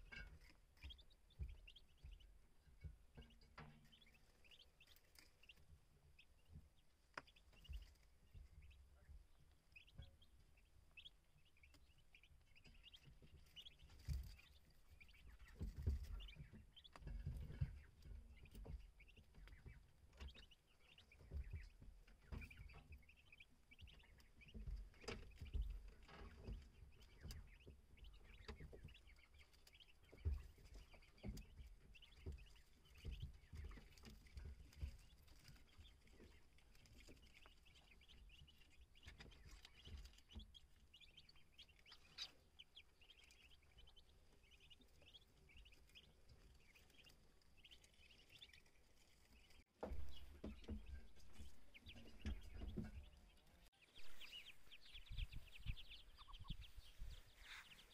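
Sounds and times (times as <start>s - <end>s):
ducklings peeping: 0.0s - 57.9s
rustling in straw: 54.0s - 57.9s.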